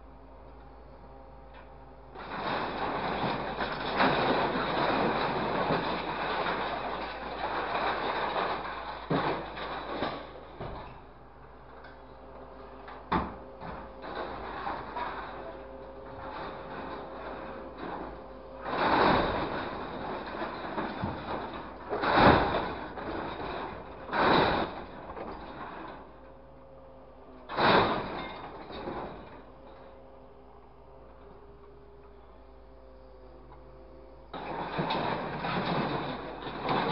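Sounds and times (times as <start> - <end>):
faint steady hum: 0.0 - 36.9
scrap metal rattling and scraping: 2.1 - 12.0, 12.7 - 26.5, 27.4 - 30.0, 34.3 - 36.9
metal clanks: 27.5 - 30.0, 34.4 - 36.9.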